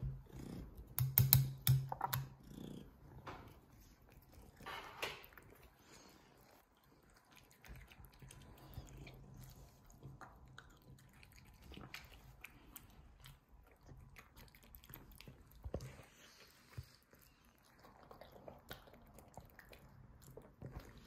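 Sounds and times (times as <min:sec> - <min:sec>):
cat chewing wet food: 0:02.3 - 0:21.0.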